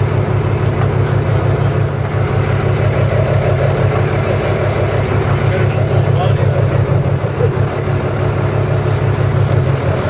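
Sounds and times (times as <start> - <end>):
boat engine droning: 0.0 - 10.0.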